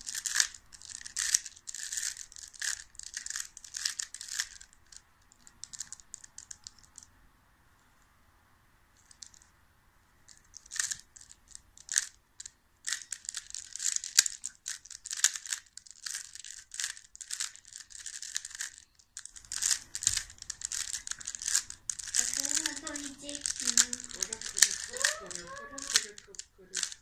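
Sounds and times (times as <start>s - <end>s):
puzzle cube layers clicking: 0.0s - 7.1s, 9.0s - 9.5s, 10.3s - 27.0s.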